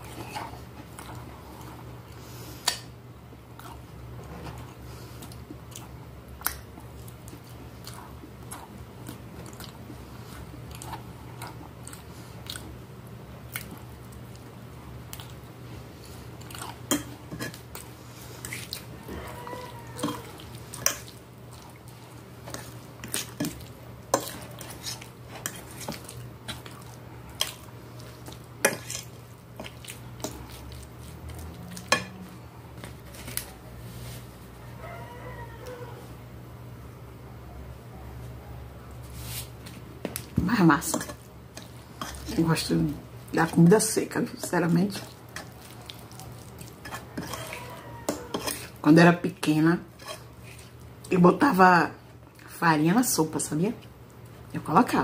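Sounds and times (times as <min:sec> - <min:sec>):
close-up chewing: 0:03.3 - 0:32.0, 0:45.0 - 0:48.8
fork scraping on a glass plate: 0:19.5 - 0:21.0, 0:46.8 - 0:48.7, 0:50.0 - 0:50.7.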